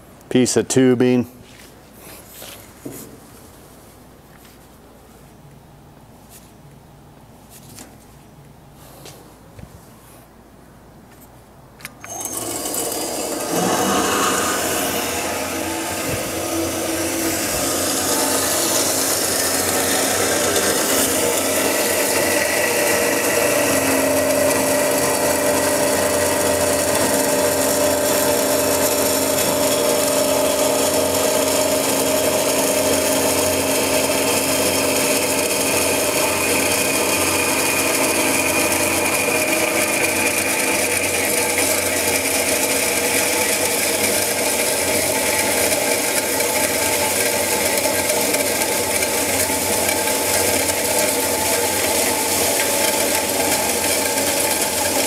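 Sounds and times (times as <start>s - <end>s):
band saw cutting metal tubing: 12.1s - 55.0s.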